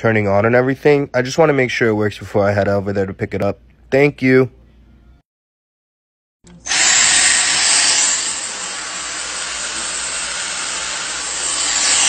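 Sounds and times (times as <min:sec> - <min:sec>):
vacuum cleaner running: 0:06.6 - 0:12.0.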